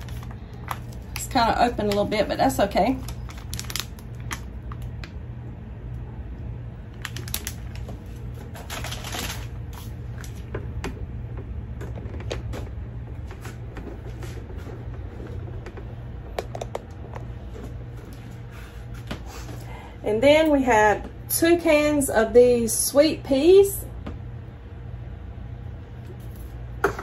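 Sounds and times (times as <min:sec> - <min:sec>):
plastic mesh bag crinkling: 0:00.0 - 0:05.0, 0:06.9 - 0:10.5
low hum: 0:00.0 - 0:27.0.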